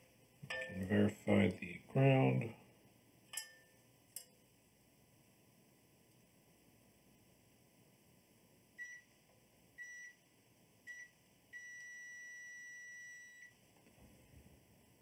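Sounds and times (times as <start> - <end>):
multimeter continuity beeps: 8.8 - 9.1, 9.8 - 10.2, 10.9 - 13.6.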